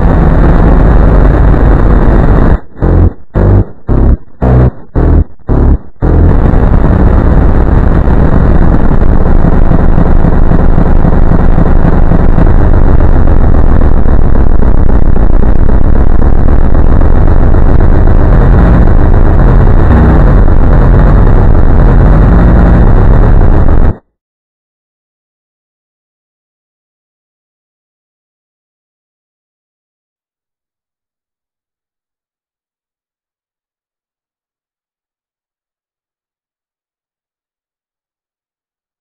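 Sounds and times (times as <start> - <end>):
distorted rumbling noise: 0.0 - 24.0
low bass notes: 0.0 - 24.0.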